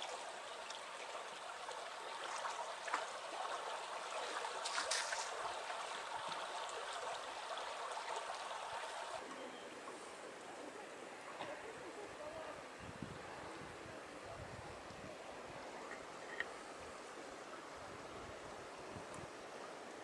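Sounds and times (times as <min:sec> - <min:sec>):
light water splashes: 0:00.0 - 0:11.8
river water babbling: 0:00.0 - 0:20.0.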